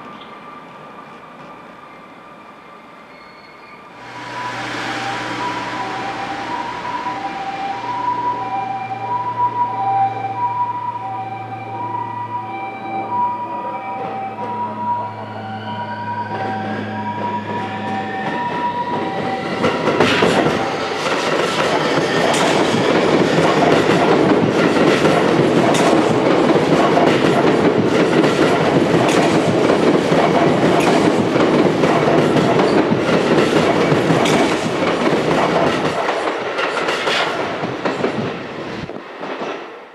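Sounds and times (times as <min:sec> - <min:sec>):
train rumbling past: 0:00.0 - 0:39.9
train wheels clacking on rail joints: 0:17.1 - 0:39.8.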